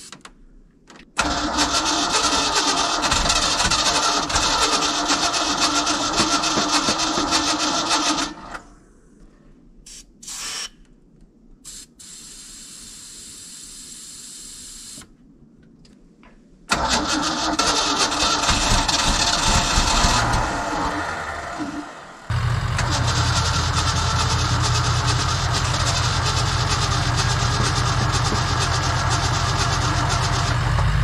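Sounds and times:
starter cranking truck engine: 1.2 - 8.6, 16.7 - 31.0
brief hiss: 9.8 - 10.8, 11.6 - 15.1.

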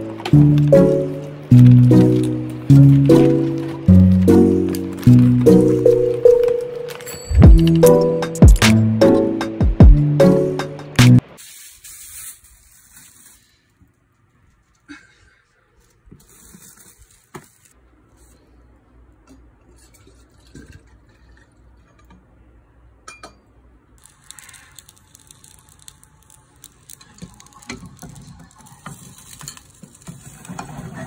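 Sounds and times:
dishes and glassware clinking: 23.0 - 23.5.

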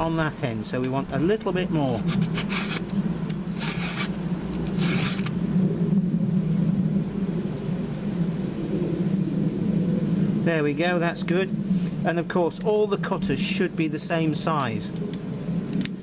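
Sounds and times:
steady low drone: 0.0 - 16.0
file rasping on chainsaw chain: 2.0 - 2.8, 3.6 - 4.2, 4.8 - 5.3.

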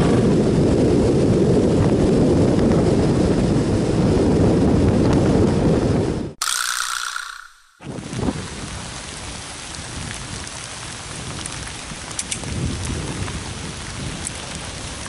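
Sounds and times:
heavy rain hissing: 7.9 - 15.0
raindrops tapping close by: 7.9 - 15.0.

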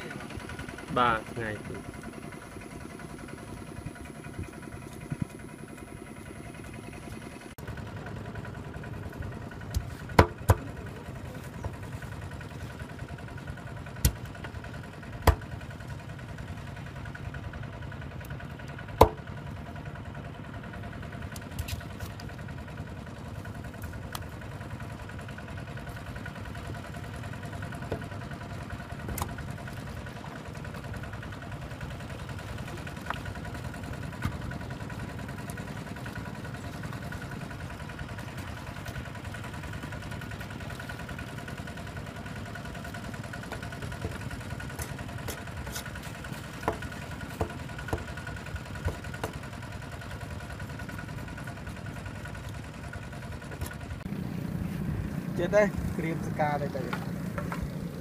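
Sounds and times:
small engine idling: 0.0 - 58.0
sharp knocks: 9.8 - 10.6, 19.0 - 19.2.

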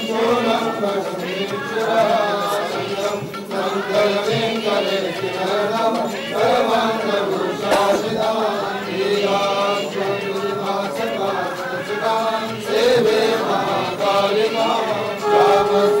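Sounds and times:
devotional chanting: 0.0 - 16.0
steady held drone: 15.1 - 16.0.

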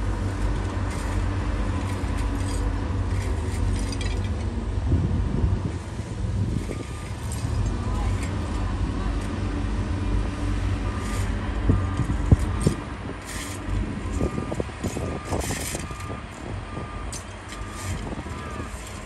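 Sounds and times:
diesel engine running: 0.0 - 19.0
reversing alarm beeping: 6.7 - 7.2, 10.8 - 12.8, 14.0 - 19.0.

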